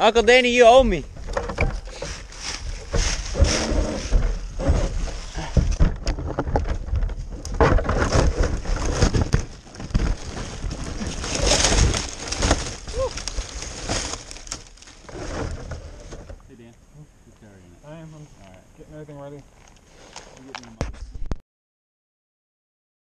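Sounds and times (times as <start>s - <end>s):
twigs and branches rustling and snapping: 0.6s - 16.4s.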